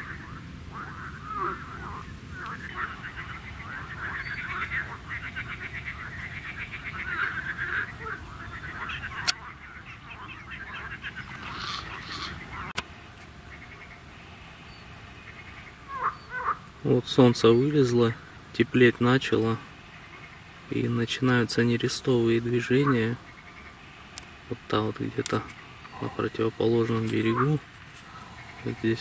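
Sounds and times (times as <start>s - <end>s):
rattling animal calls: 0.0s - 12.8s, 19.2s - 29.0s.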